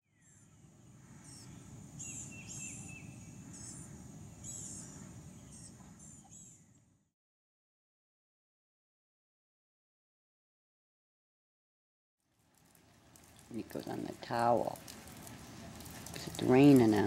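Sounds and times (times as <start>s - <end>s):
small birds chirping: 0.0s - 6.9s, 13.0s - 17.0s.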